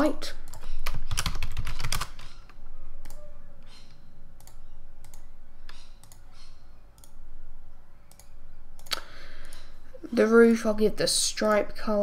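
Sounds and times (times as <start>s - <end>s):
computer mouse clicking: 0.4s - 7.2s, 8.1s - 9.7s.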